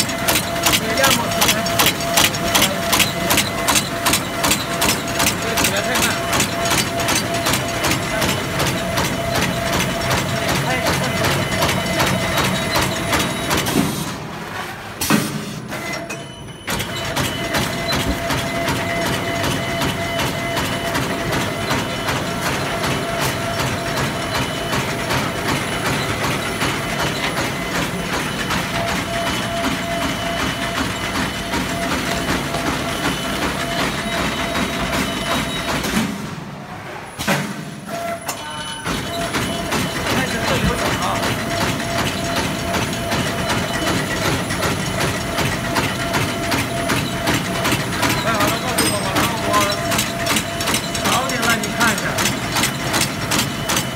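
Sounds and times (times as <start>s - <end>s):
machine whine: 0.0s - 14.8s, 15.7s - 53.9s
fast mechanical clatter: 0.0s - 36.3s, 38.8s - 53.9s.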